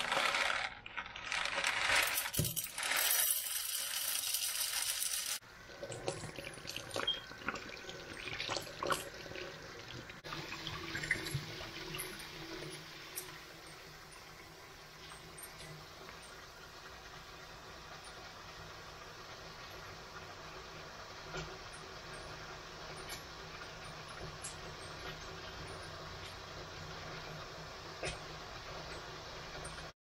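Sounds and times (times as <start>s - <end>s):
tap water running into sink: 5.7s - 18.2s.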